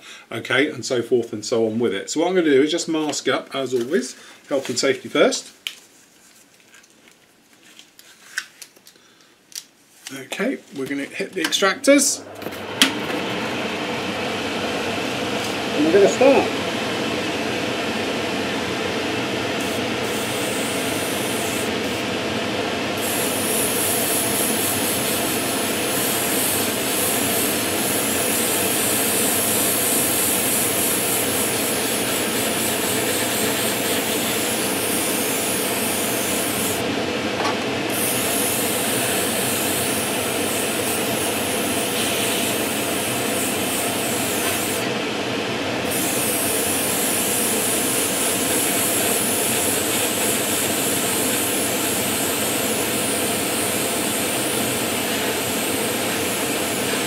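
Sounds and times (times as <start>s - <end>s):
extractor fan running: 10.4s - 57.0s
airbrush spraying hiss: 19.6s - 22.0s, 23.0s - 36.8s, 37.9s - 44.8s, 45.9s - 57.0s.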